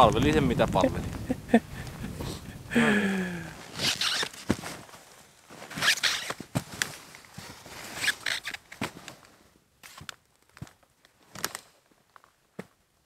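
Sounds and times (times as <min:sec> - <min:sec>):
boots crunching in dry snow: 0:03.6 - 0:08.2
ski clicks and knocks: 0:03.7 - 0:12.8.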